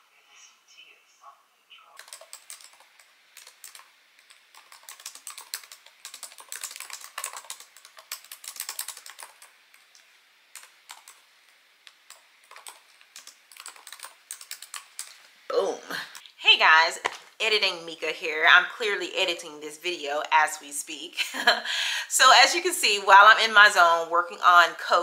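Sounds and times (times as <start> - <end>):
typing on laptop keyboard: 2.0 - 11.3, 11.9 - 15.2.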